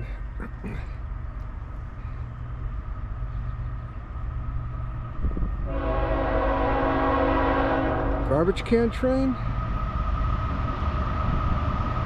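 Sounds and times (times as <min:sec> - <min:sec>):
low steady train rumble: 0:00.0 - 0:12.0
locomotive air horn chord: 0:05.6 - 0:08.5.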